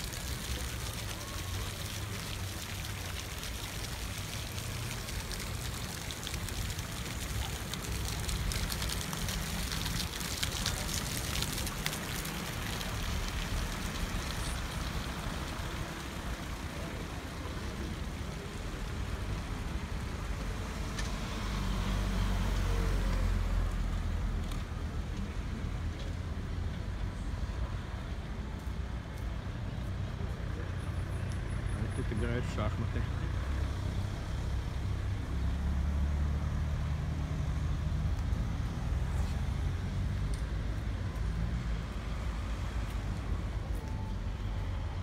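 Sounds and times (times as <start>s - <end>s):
passing traffic: 0.0s - 45.0s.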